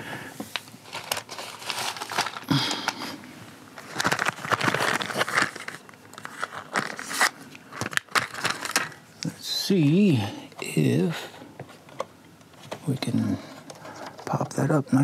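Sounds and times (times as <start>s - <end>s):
plastic parts clicking and creaking: 0.5s - 3.0s, 3.8s - 9.3s, 11.6s - 14.7s.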